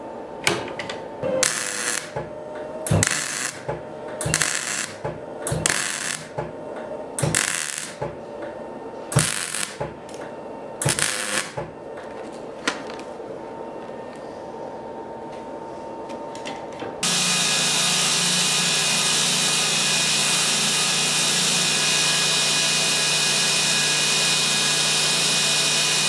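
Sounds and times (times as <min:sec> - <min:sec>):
welder arc crackling: 0:01.4 - 0:02.2, 0:02.9 - 0:06.4, 0:07.2 - 0:08.0, 0:09.2 - 0:09.8, 0:10.8 - 0:11.6.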